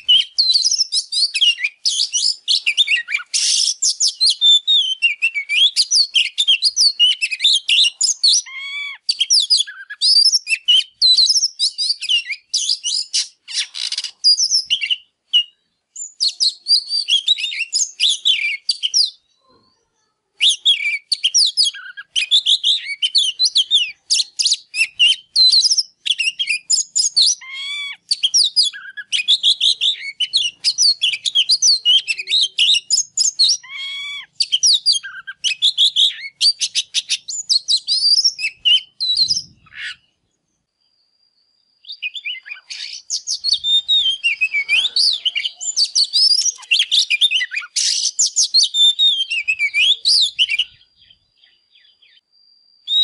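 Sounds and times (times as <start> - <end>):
bird singing whistles and chirps: 0.0 - 19.5, 20.4 - 53.0
bird harsh rasp: 13.0 - 14.2, 42.5 - 48.2.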